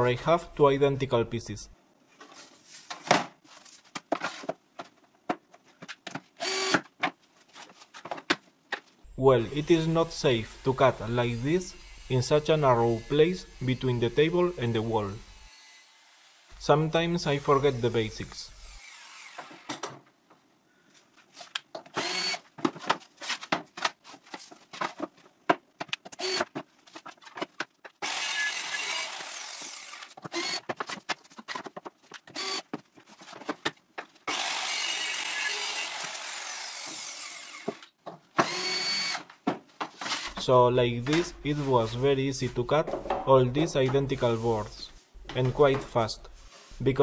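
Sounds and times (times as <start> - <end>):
cordless drill driving screw: 6.4 - 6.8, 22.0 - 22.4, 26.2 - 26.5, 28.0 - 30.6, 32.3 - 32.7, 34.3 - 39.3.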